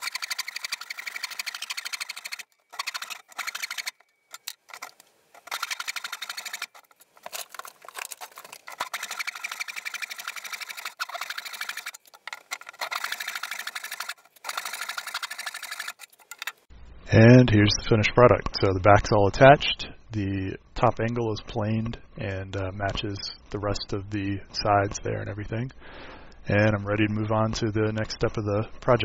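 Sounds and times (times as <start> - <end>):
hand saw rasping strokes: 0.0 - 16.7.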